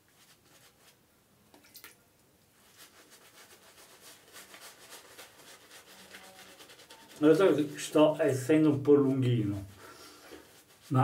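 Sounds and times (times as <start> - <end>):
shaving brush rubbing lather: 2.6 - 11.0.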